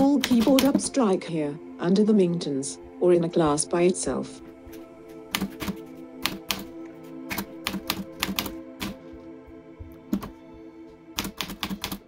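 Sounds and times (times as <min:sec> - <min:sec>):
typewriter keys clacking: 0:00.0 - 0:00.8, 0:05.4 - 0:06.7, 0:07.3 - 0:09.0, 0:11.2 - 0:12.0
background music: 0:00.0 - 0:12.0.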